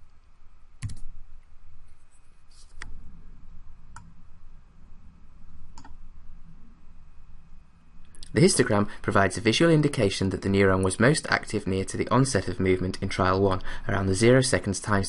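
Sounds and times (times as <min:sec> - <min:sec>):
faint low room hum: 0:00.0 - 0:15.0
keyboard and mouse clicks: 0:00.8 - 0:01.5, 0:05.7 - 0:06.0.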